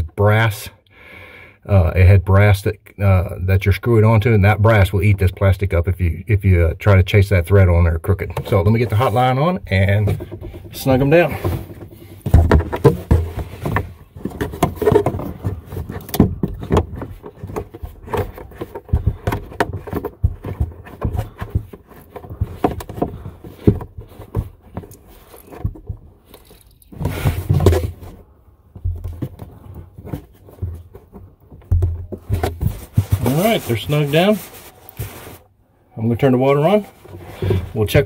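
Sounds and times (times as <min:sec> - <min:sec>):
plastic nut scraping and rubbing: 0:08.2 - 0:35.6
louder scuffle: 0:29.0 - 0:35.6.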